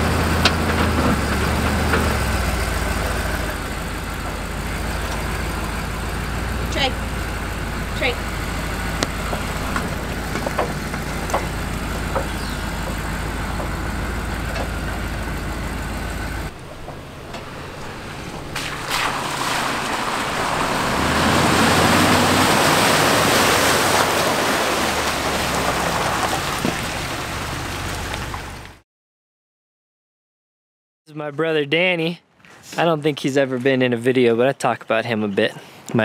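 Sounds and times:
pickup engine idling: 0.0 - 28.8
truck driving through mud: 0.0 - 28.8.

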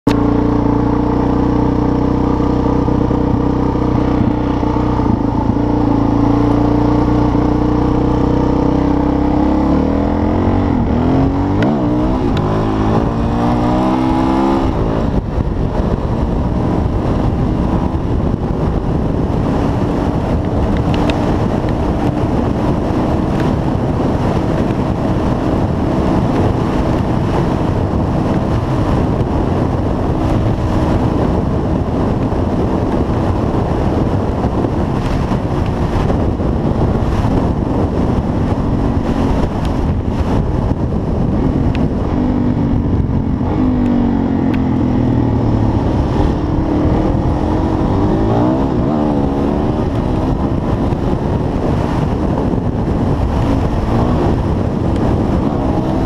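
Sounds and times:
motorcycle engine running hard: 0.0 - 56.0
wind rushing over microphone: 0.0 - 56.0.

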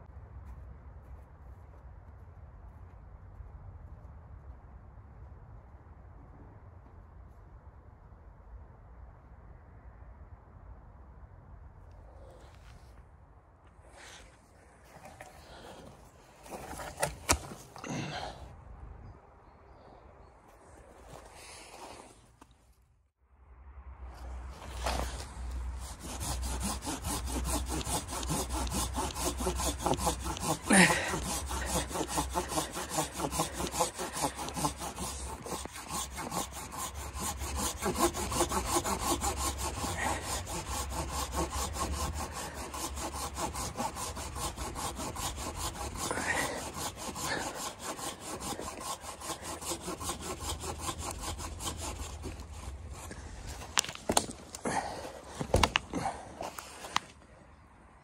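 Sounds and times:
hand saw cutting wood: 14.8 - 18.2, 24.6 - 57.1.

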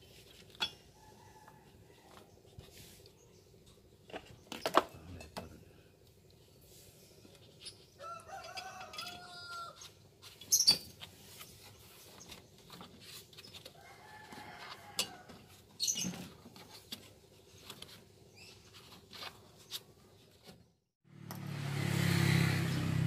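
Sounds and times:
rooster crowing: 1.0 - 2.2, 8.0 - 9.9, 13.8 - 15.4
metal tools clattering: 7.5 - 9.4.

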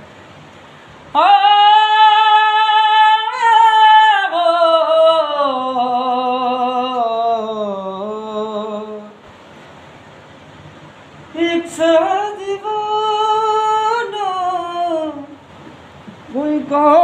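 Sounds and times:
man singing unaccompanied: 1.1 - 9.2, 11.3 - 15.5, 16.2 - 17.0.

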